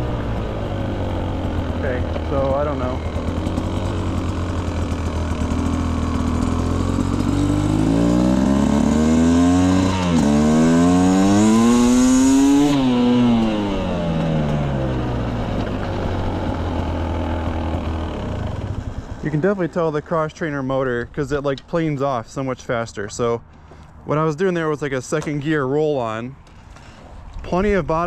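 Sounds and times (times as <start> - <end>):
dirt bike engine revving: 0.0 - 20.0.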